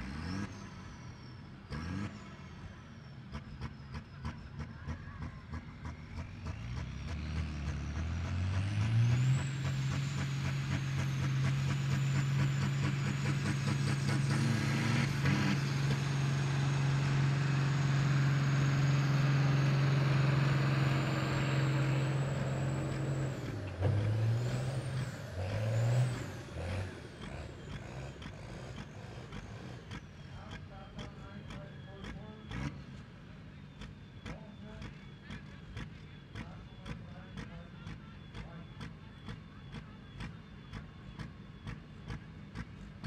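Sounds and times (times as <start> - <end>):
diesel tractor engine revving: 0.0 - 43.0.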